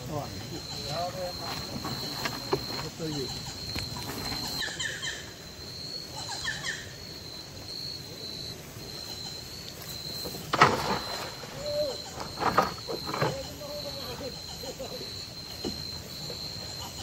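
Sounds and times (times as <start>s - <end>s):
high insect trill: 0.0s - 17.0s
net splashing into water: 10.5s - 11.8s.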